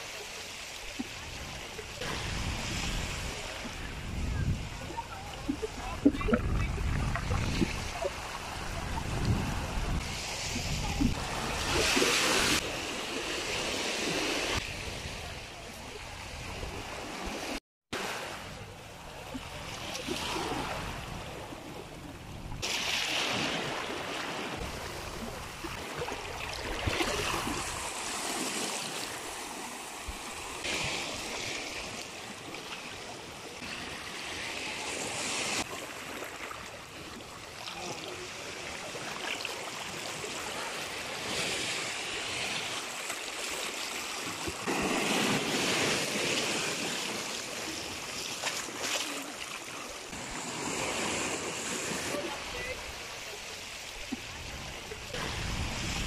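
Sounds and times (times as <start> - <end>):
ocean waves washing on rocks: 18.0 - 56.0.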